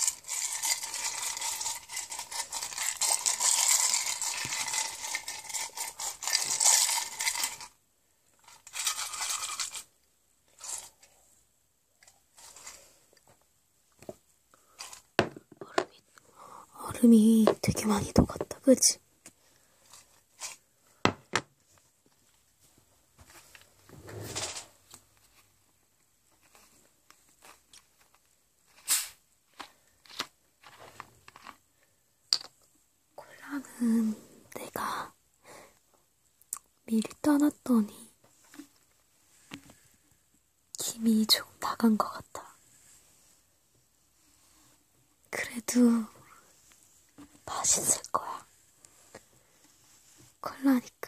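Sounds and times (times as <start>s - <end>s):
plastic rustle: 0.0s - 7.8s
plastic bottle rattling: 0.0s - 11.0s.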